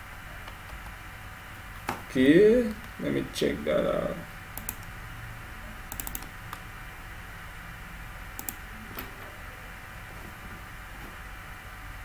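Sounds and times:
steady low hum: 0.0 - 12.0
computer mouse and key clicks: 4.6 - 4.9, 5.9 - 6.6, 8.4 - 9.1.

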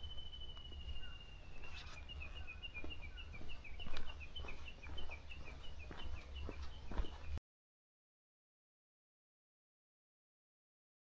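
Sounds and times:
faint footsteps: 0.0 - 7.4
songbird singing: 0.0 - 7.4.

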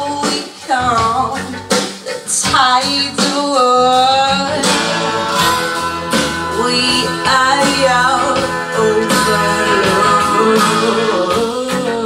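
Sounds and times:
song with singing and guitar: 0.0 - 12.0.

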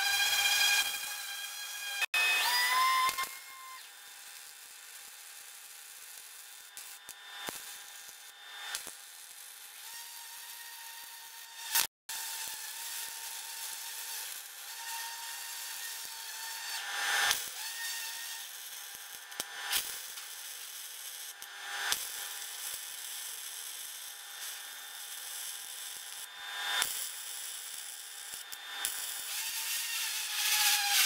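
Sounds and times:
sanders on sheet metal: 0.0 - 3.7, 9.7 - 20.3, 28.8 - 31.0
welder crackling: 0.0 - 31.0.

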